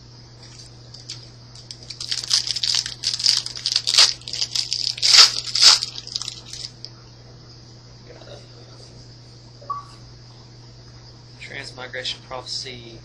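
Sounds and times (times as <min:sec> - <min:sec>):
foil wrapper tearing and crinkling: 0:00.5 - 0:06.8.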